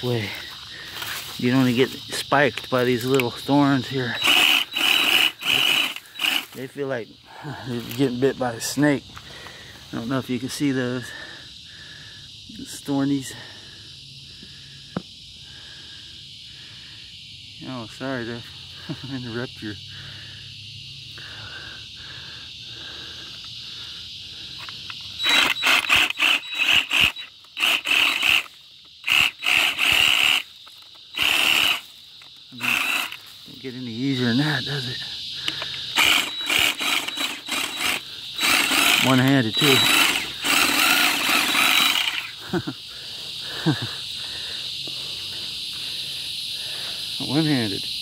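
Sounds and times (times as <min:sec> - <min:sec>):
reciprocating saw cutting stems: 0:00.0 - 0:06.8, 0:24.7 - 0:42.7
cicadas droning: 0:00.0 - 0:48.0.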